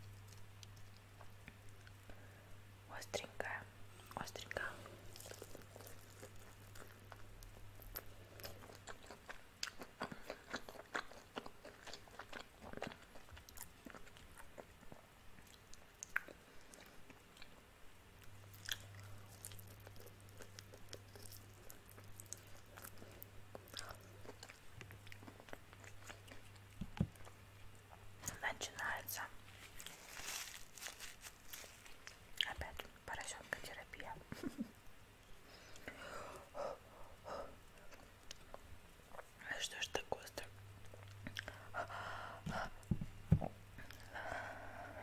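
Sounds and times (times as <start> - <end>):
crunchy chewing: 4.8 - 17.6, 18.2 - 32.9.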